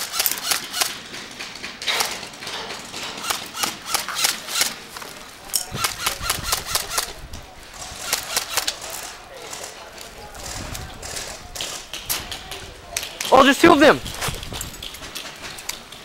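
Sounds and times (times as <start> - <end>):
footsteps running on gravel: 10.4 - 16.0.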